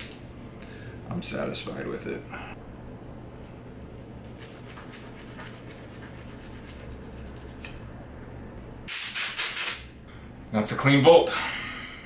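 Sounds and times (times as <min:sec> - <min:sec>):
toothbrush scrubbing metal: 0:04.3 - 0:07.7.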